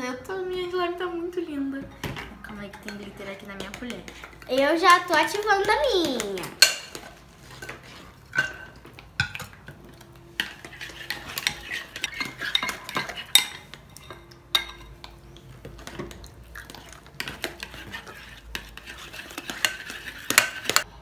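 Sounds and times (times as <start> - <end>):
plastic spoons scraping glass bowls: 10.4 - 14.2, 15.2 - 20.9.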